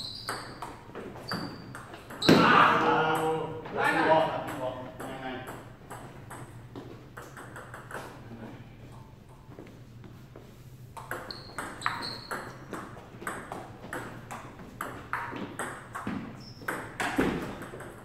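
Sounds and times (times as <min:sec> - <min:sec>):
ping-pong ball clicking off paddles: 0:04.4 - 0:08.2, 0:10.9 - 0:18.0.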